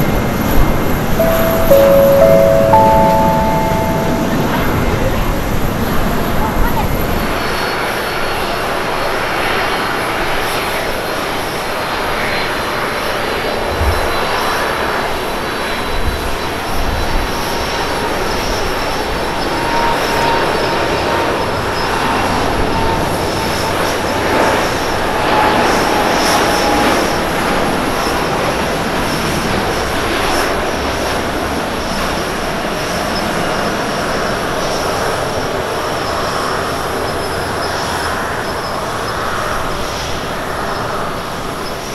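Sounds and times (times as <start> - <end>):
faint whine: 1.2 - 5.3.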